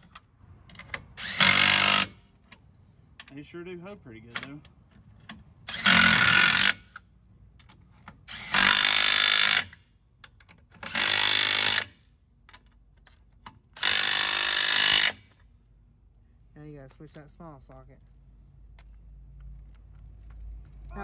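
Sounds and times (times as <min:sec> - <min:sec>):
impact wrench running lug nuts: 0:00.9 - 0:02.2, 0:05.6 - 0:07.0, 0:08.2 - 0:09.8, 0:10.8 - 0:12.0, 0:13.7 - 0:15.4.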